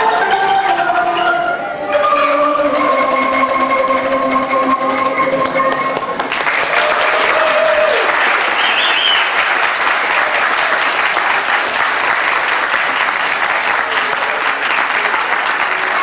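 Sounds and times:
children clapping: 4.8s - 16.0s.

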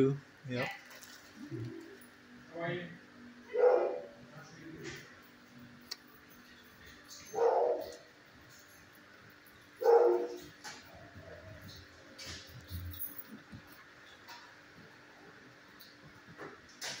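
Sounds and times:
dog barking: 3.5s - 4.2s, 7.3s - 8.1s, 9.8s - 10.5s.

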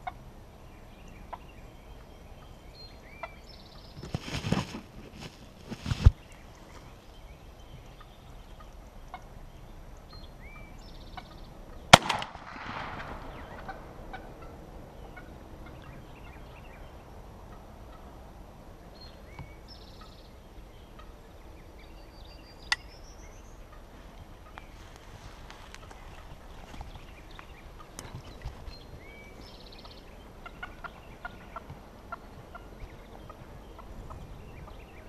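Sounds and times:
turkey gobbling: 13.0s - 15.8s, 30.4s - 33.9s.

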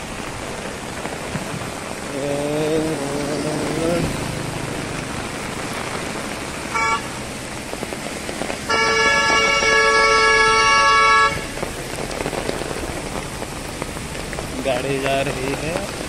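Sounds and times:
heavy rain hissing on road: 0.0s - 16.0s
vehicle horn: 6.7s - 7.2s, 8.7s - 11.6s.

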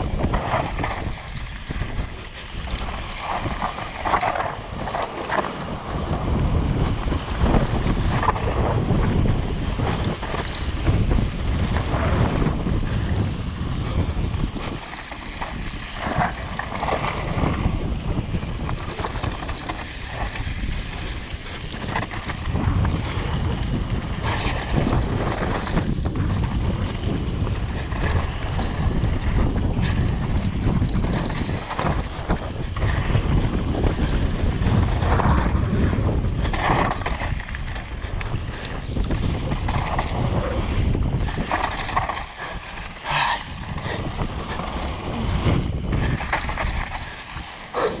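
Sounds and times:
bike rattling over rough ground: 0.0s - 48.0s
wind buffeting microphone: 0.0s - 48.0s.

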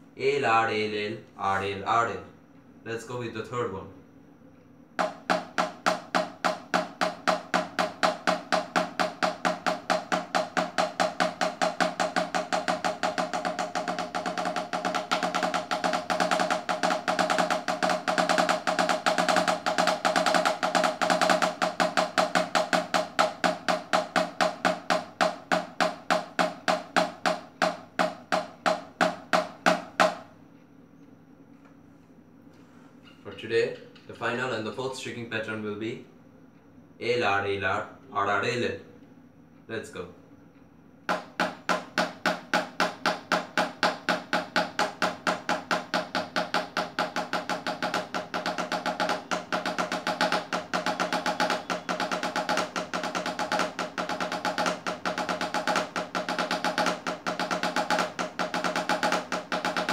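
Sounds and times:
drumsticks striking practice pads: 5.0s - 30.4s, 41.1s - 59.9s.

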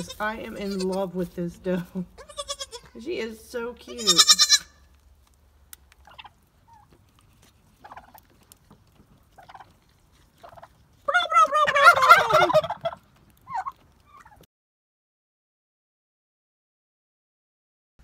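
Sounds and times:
turkey gobbling: 6.0s - 7.0s, 7.8s - 8.3s, 9.3s - 9.8s, 10.4s - 14.4s.

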